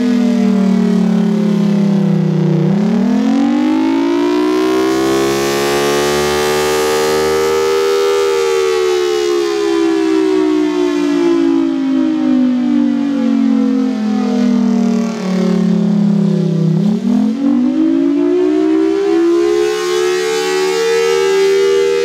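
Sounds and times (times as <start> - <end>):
warning siren wailing: 0.0 - 22.0.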